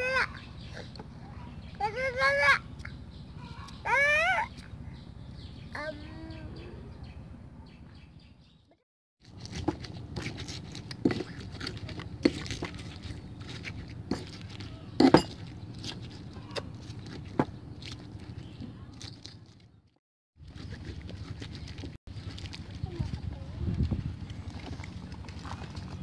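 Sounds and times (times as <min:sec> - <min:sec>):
wet crushing rustle: 0:09.2 - 0:26.0.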